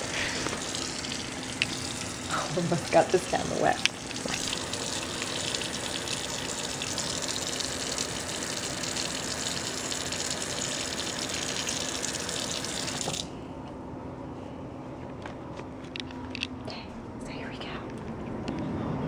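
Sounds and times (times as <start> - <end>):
faucet running into sink: 0.0 - 13.3.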